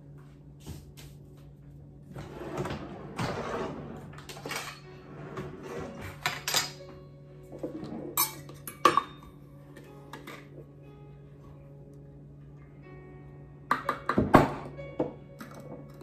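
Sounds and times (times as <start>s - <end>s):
dishes and utensils clattering: 2.6s - 10.6s, 15.4s - 16.0s.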